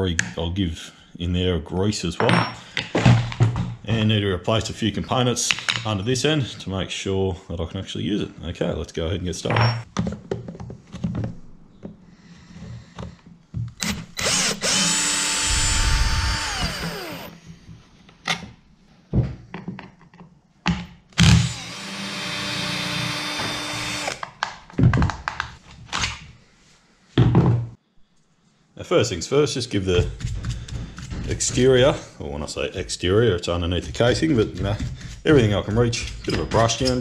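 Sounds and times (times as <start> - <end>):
cordless drill whining: 13.8 - 17.4, 21.2 - 24.2.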